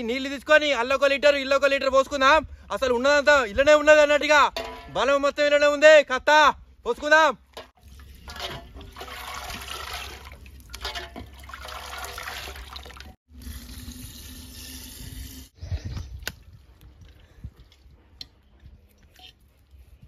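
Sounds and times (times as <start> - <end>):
broth pouring and splashing: 7.8 - 15.6
low tone of pot filling: 7.8 - 15.6.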